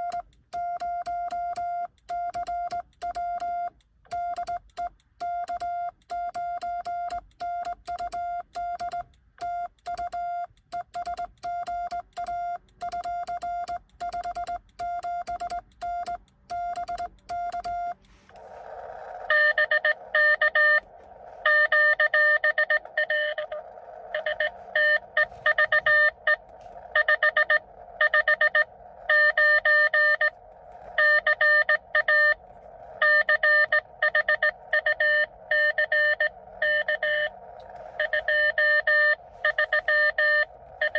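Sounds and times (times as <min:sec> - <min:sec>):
morse code sidetone beeps: 0:00.0 - 0:18.3, 0:19.2 - 0:40.9
received morse tones: 0:05.2 - 0:40.9
radio receiver hiss: 0:17.9 - 0:40.9.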